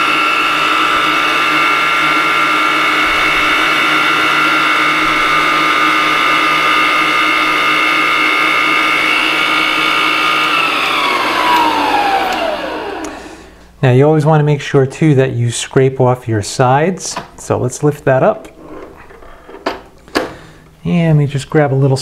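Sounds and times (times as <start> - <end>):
stand mixer motor whining: 0.0 - 13.4.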